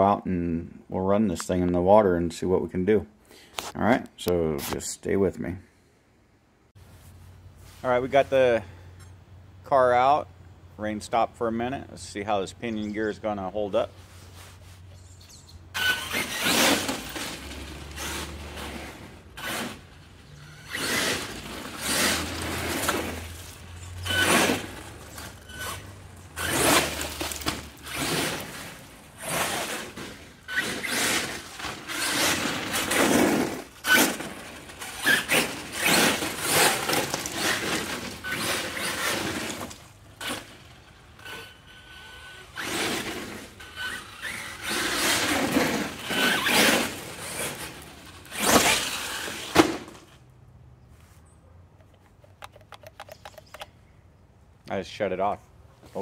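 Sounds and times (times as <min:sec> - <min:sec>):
tyres on wet ground: 0:11.9 - 0:53.8
electric rc truck motor revving: 0:15.7 - 0:50.2.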